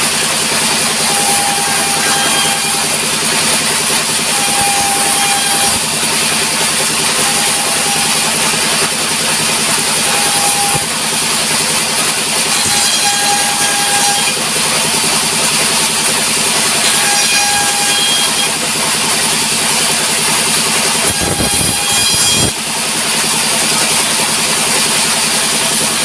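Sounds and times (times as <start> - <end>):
band saw engine droning: 0.0 - 26.0
saw blade whine ripping boards: 0.0 - 26.0.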